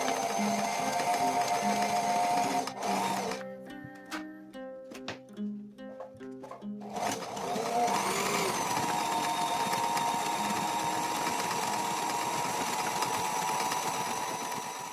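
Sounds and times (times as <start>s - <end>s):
sewing machine motor whine: 0.0s - 3.4s, 6.8s - 14.9s.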